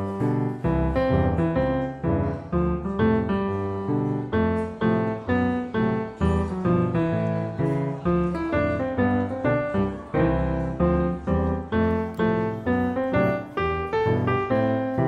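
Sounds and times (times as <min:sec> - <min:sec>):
piano playing even notes: 0:00.0 - 0:15.0.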